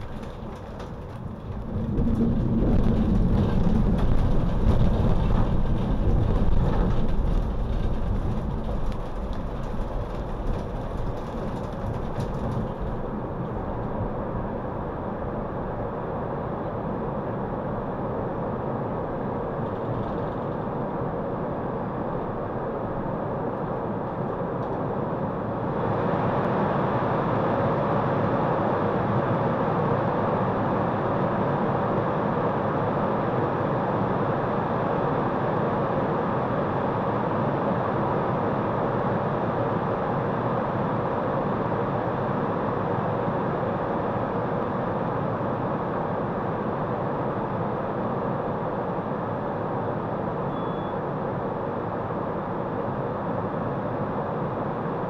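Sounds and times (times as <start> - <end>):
tram running noise: 0.0 - 26.5.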